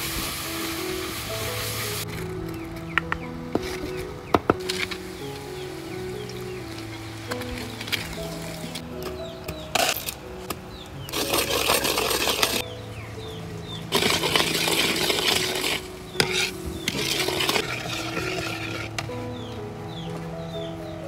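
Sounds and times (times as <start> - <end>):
paste frying in bubbling oil: 0.0 - 2.1, 13.9 - 18.9
soft background music: 0.0 - 21.0
metal ladle scraping wok: 11.1 - 12.6, 13.9 - 19.0.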